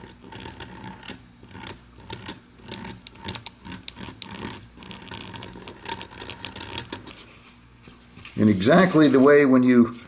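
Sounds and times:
rotary tool motor hum: 0:00.0 - 0:07.4
burr scratching wood: 0:00.0 - 0:07.6.

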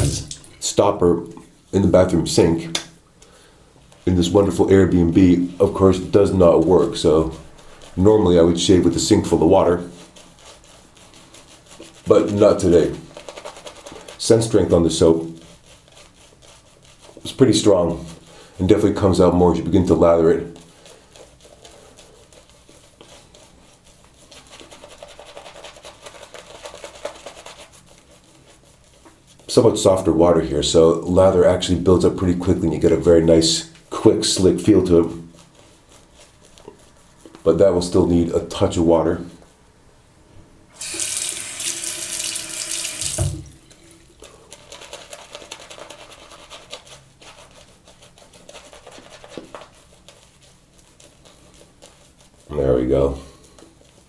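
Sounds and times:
shaving brush scrubbing rustle: 0:00.7 - 0:02.6, 0:03.8 - 0:39.6, 0:40.8 - 0:54.0
tap running water: 0:40.7 - 0:44.2.

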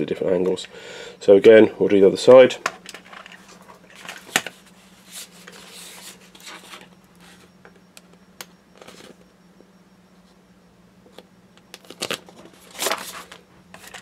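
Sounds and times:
steady low hum: 0:00.0 - 0:14.0
plastic sheet rustling and crackling: 0:11.8 - 0:14.0.

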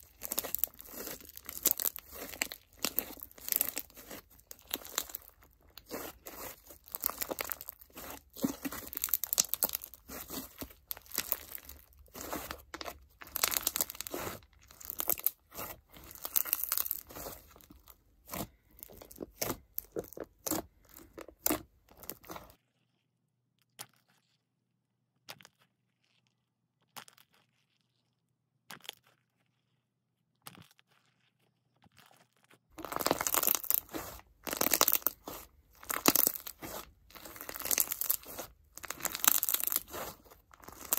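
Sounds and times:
slime crunching by hand: 0:00.0 - 0:22.6, 0:32.7 - 0:40.9.

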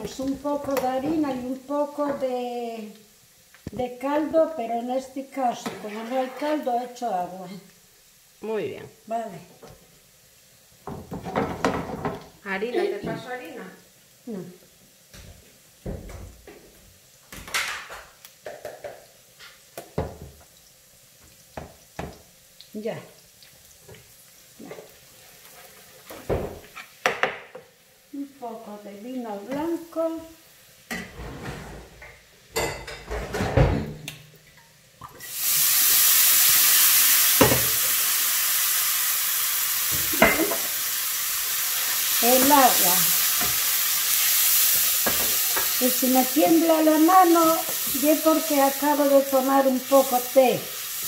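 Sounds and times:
loud sizzle in frying pan: 0:00.0 - 0:31.1, 0:32.0 - 0:51.0
scraping rustle: 0:31.1 - 0:32.2.

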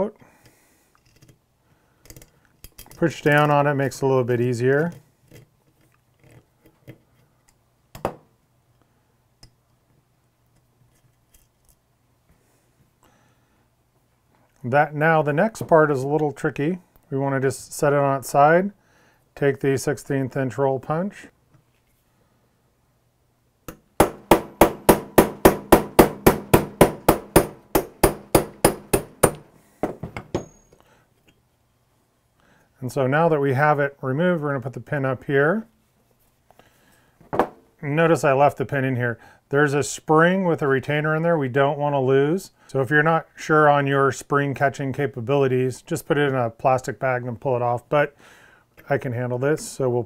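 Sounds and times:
small metallic clicks: 0:02.0 - 0:03.0
hammer striking metal punch: 0:23.7 - 0:30.8.

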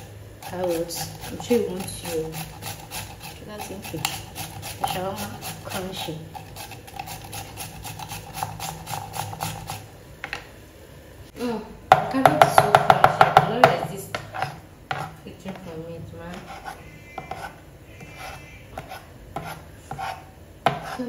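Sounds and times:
carrot grated on metal grater: 0:00.0 - 0:09.9.

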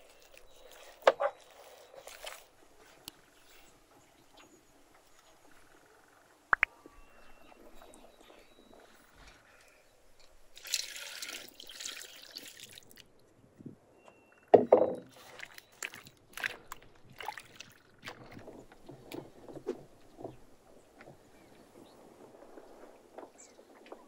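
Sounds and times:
hands squelching wet mixture: 0:00.0 - 0:02.6, 0:15.1 - 0:18.6.

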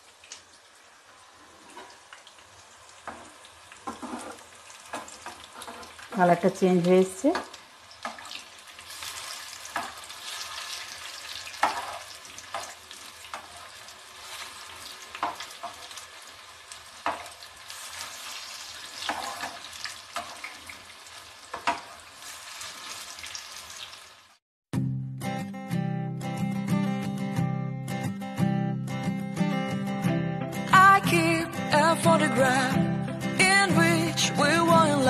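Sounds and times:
fritters sizzling in hot oil: 0:00.0 - 0:24.4
metal spatula scraping pan: 0:03.9 - 0:04.4, 0:05.4 - 0:06.0, 0:11.6 - 0:12.8, 0:19.0 - 0:20.5.

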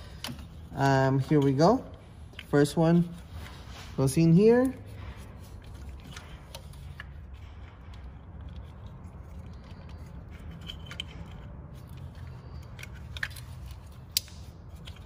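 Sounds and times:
low steady hum: 0:00.0 - 0:15.0
plastic parts clicking and rattling: 0:05.6 - 0:15.0.

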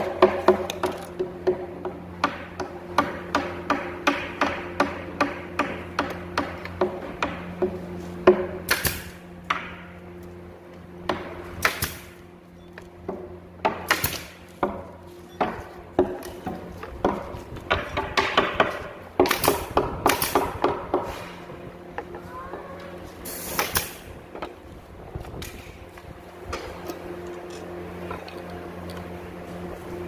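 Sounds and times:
nail gun firing: 0:08.4 - 0:09.8, 0:11.1 - 0:12.2, 0:13.7 - 0:14.4, 0:17.7 - 0:20.8, 0:23.3 - 0:24.1
short hiss of air: 0:23.2 - 0:24.0.

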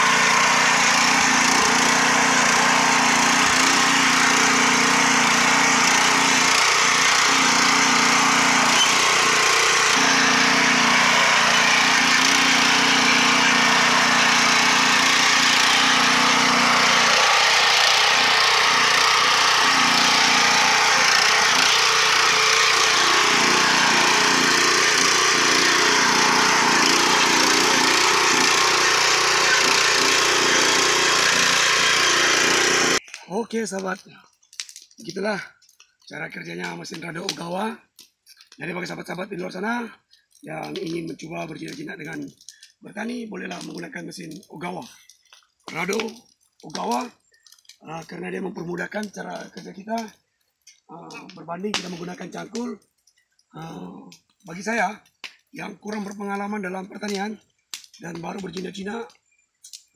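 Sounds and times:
rotary tiller engine running: 0:00.0 - 0:33.1.

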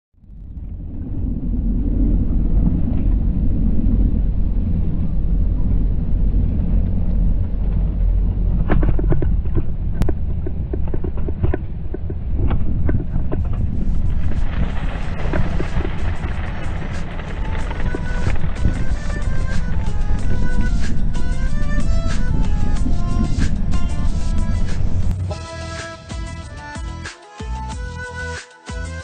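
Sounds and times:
bike tyre noise: 0:00.2 - 0:25.4
wind on microphone: 0:00.3 - 0:25.3
sharp ticks and crackles: 0:12.9 - 0:25.2.

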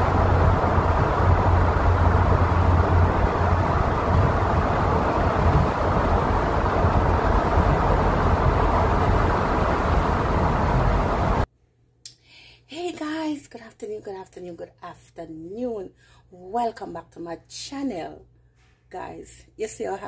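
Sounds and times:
car cabin road noise: 0:00.0 - 0:11.5.

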